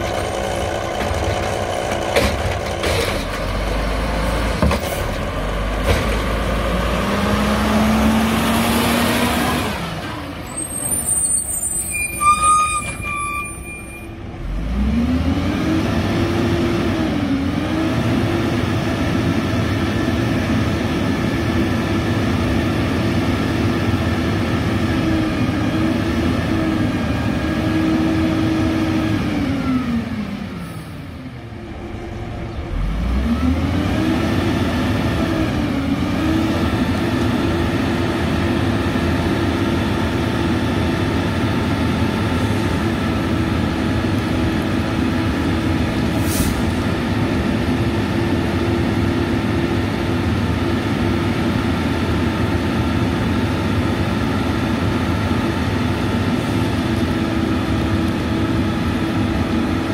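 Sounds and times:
diesel engine revving: 0.0 - 11.8, 14.2 - 59.9.

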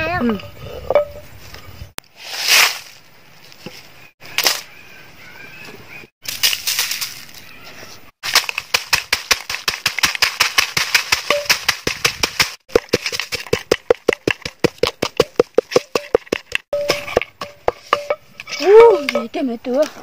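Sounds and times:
wooden pestle pounding: 8.2 - 19.4.

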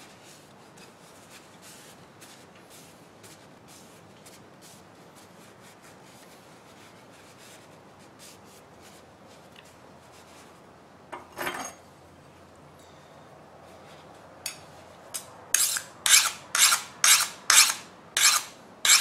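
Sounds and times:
file scraping steel blade: 15.2 - 19.0.

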